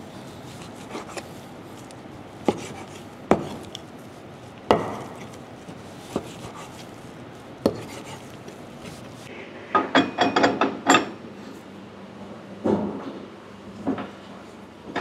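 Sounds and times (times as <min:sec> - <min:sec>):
cleaver chopping meat on board: 0:02.5 - 0:03.7.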